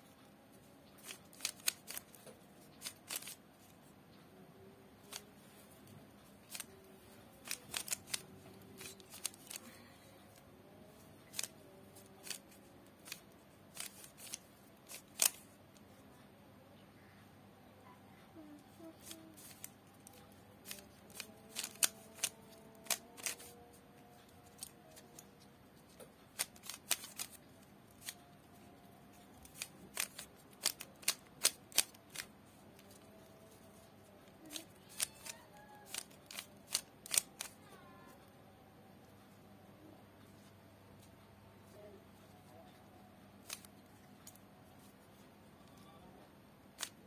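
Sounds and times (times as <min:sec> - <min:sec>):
puzzle cube clicking turns: 0:00.9 - 0:03.7, 0:05.0 - 0:05.4, 0:06.3 - 0:10.4, 0:11.2 - 0:15.8, 0:18.8 - 0:33.5, 0:34.3 - 0:37.6, 0:43.4 - 0:44.4, 0:46.7 - 0:47.0.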